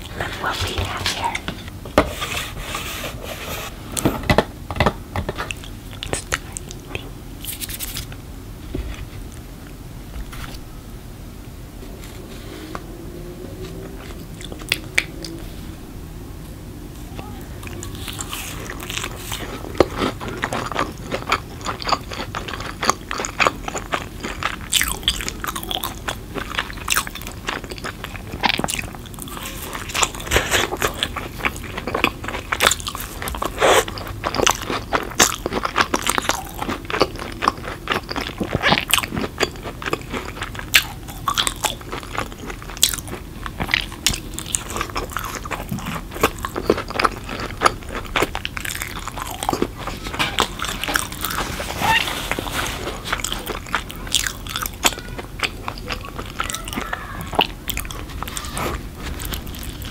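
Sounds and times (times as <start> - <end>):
crunching and chewing cracker: 5.3 - 8.2, 13.6 - 15.4, 17.6 - 59.9.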